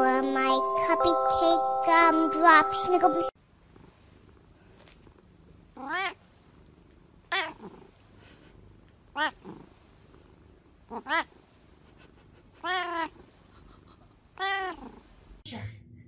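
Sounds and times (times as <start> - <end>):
cat meowing: 5.8 - 6.2, 7.3 - 7.6, 9.2 - 9.4, 10.9 - 11.3, 12.6 - 13.2, 14.4 - 14.9.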